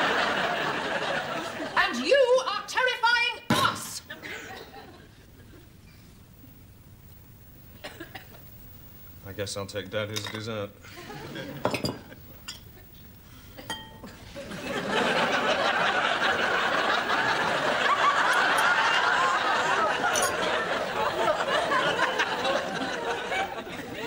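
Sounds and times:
studio audience laughter: 0:00.0 - 0:01.8, 0:10.8 - 0:11.6, 0:14.3 - 0:24.0
cutlery clinking on crockery: 0:10.1 - 0:10.4, 0:11.6 - 0:12.7, 0:13.6 - 0:14.2, 0:20.0 - 0:20.5.

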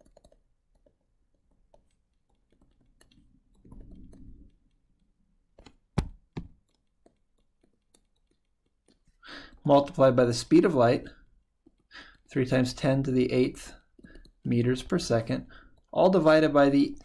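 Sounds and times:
stylus tapping on tablet screen: 0:00.0 - 0:09.0.

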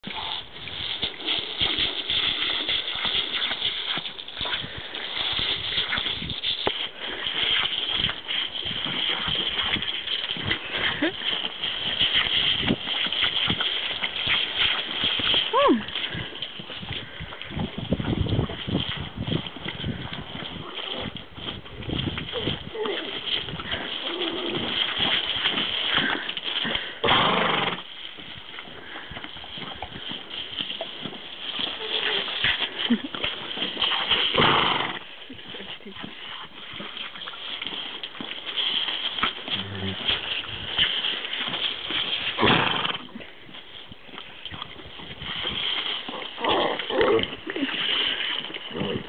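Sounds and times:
water splashing: 0:00.0 - 0:49.0.

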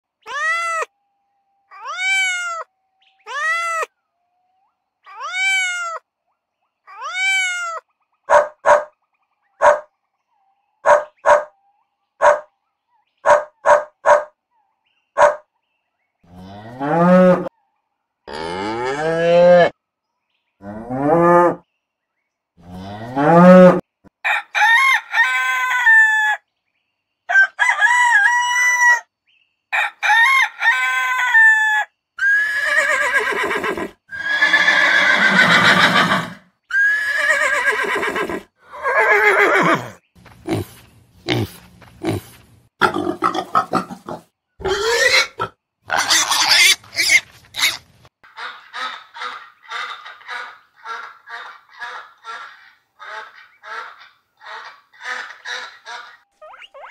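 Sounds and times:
sharp bird calls: 0:06.6 - 0:15.6
cow mooing: 0:16.3 - 0:17.5, 0:18.3 - 0:19.7
rooster crowing: 0:24.2 - 0:26.4, 0:27.3 - 0:29.1, 0:29.8 - 0:31.9
horse whinnying: 0:32.3 - 0:40.0, 0:44.6 - 0:47.8.

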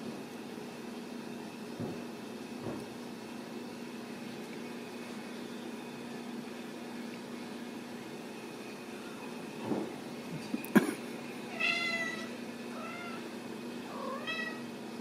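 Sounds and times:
low background hum: 0:00.0 - 0:15.0
kittens meowing: 0:11.5 - 0:13.3.

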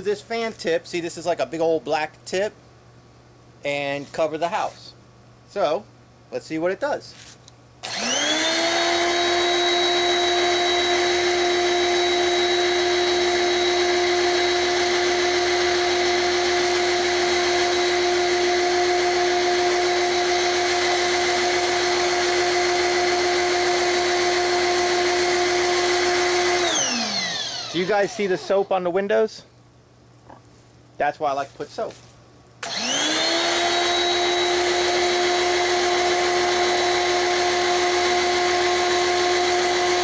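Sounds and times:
pressure washer motor whining: 0:07.8 - 0:28.9, 0:32.6 - 0:40.0.

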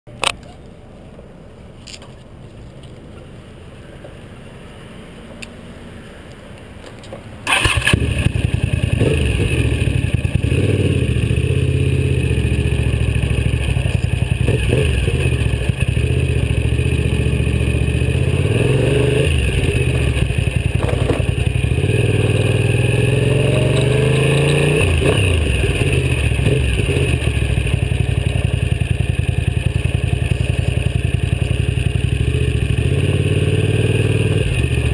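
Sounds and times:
motorcycle engine revving: 0:07.5 - 0:34.9.

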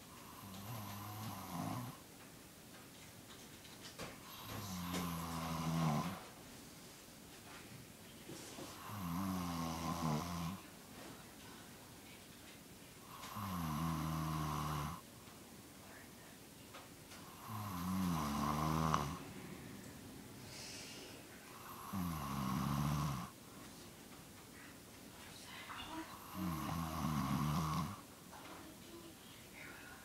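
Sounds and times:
quiet breaths: 0:00.0 - 0:30.0
woman snoring: 0:00.2 - 0:02.0, 0:04.2 - 0:06.2, 0:08.7 - 0:10.6, 0:13.0 - 0:15.0, 0:17.2 - 0:19.2, 0:20.5 - 0:23.4, 0:26.1 - 0:28.0.

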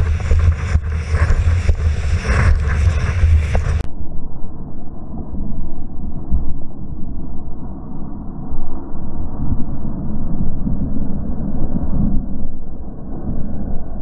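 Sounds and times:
water rushing under a board: 0:00.0 - 0:03.8
wind buffeting microphone: 0:00.0 - 0:03.9.

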